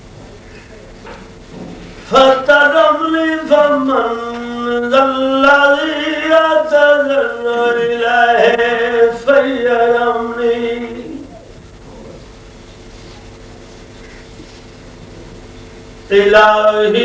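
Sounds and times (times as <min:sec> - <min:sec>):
man chanting: 0:02.1 - 0:11.5, 0:16.1 - 0:17.0.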